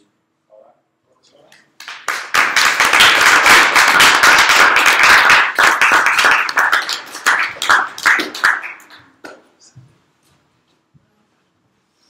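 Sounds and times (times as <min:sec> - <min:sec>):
group applauding: 0:01.6 - 0:09.5.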